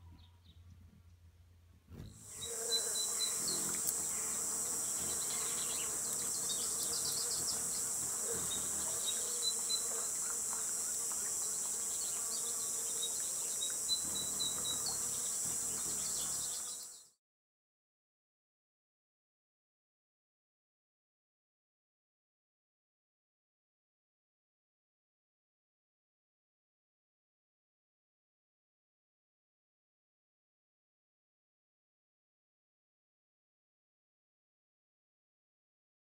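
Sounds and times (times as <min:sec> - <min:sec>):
high-pitched insect buzzing: 0:02.2 - 0:17.2.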